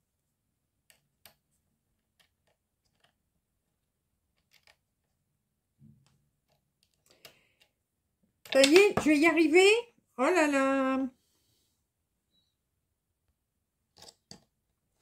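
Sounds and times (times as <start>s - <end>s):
small metal screw clicks and taps: 4.4s - 4.8s.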